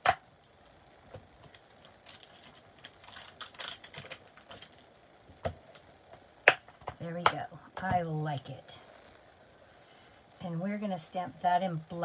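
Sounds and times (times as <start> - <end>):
plastic crinkling and clicks: 1.1 - 5.9.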